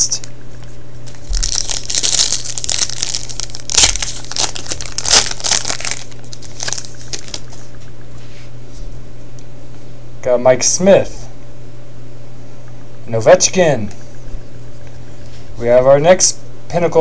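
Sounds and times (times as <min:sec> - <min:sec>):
foil wrapper crinkling and tearing: 0:01.0 - 0:07.6
sharp rips of foil: 0:01.1 - 0:07.4
cards rustling: 0:01.1 - 0:07.7.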